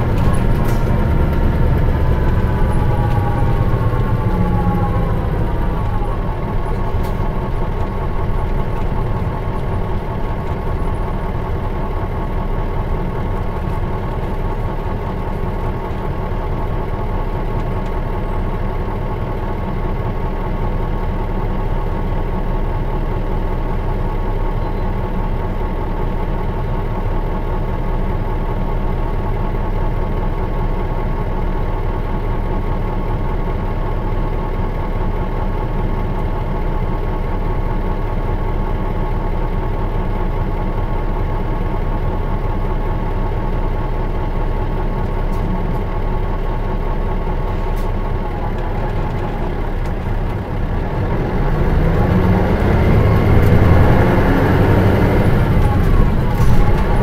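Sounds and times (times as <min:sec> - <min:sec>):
diesel bus engine idling: 0:00.0 - 0:57.0.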